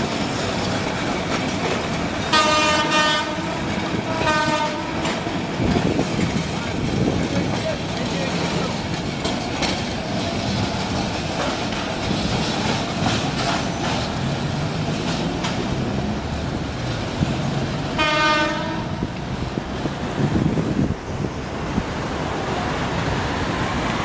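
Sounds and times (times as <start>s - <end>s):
railcar engine under load: 0.0s - 24.0s
wheels clicking over rail joints: 0.0s - 24.0s
train horn blast: 2.3s - 5.2s, 17.9s - 19.2s.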